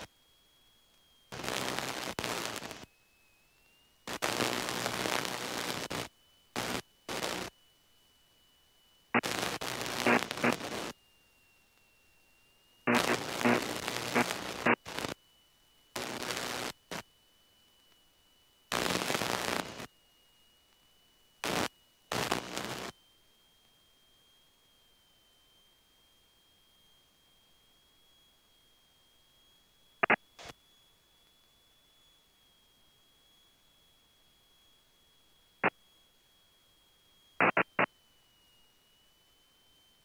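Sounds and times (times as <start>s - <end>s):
faint steady high tone: 0.0s - 40.0s
rushing cockpit noise with drone: 9.2s - 10.9s, 12.9s - 15.2s, 30.0s - 30.5s, 37.4s - 37.9s.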